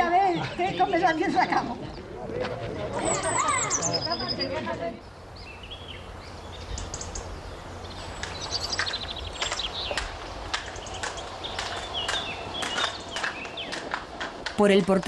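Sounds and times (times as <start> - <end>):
small birds chirping: 2.9 - 14.1
hooves clopping: 7.9 - 15.0.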